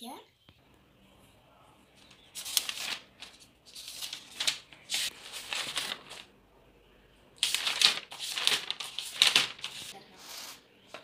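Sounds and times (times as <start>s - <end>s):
book pages rustling: 2.0s - 6.3s, 7.4s - 11.0s.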